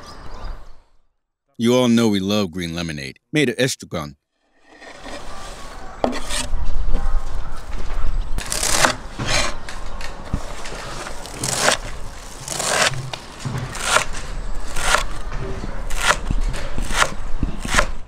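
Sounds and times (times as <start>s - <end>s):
knife chopping and scraping on wood: 6.0s - 6.6s, 8.4s - 9.6s, 10.4s - 15.2s, 15.9s - 18.0s.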